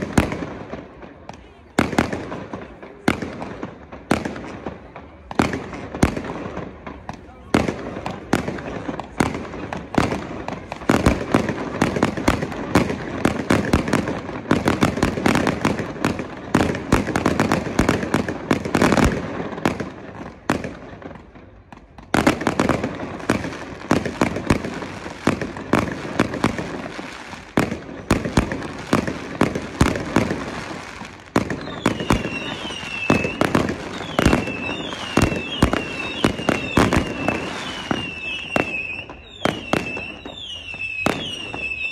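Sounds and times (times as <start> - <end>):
fireworks bangs and crackling: 0.0 - 41.9
fireworks high whistles: 23.2 - 41.9.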